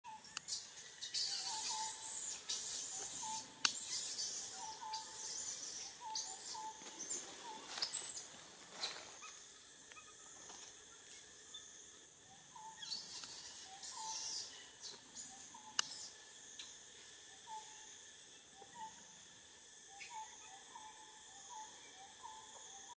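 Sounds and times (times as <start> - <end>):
short chirping call: 0.1 - 6.8
high-pitched insect buzzing: 0.1 - 22.9
sharp clicks: 2.9 - 4.0.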